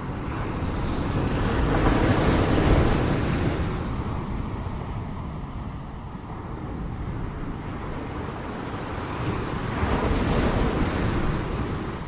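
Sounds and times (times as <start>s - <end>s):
ocean surf washing on shore: 0.0s - 12.0s.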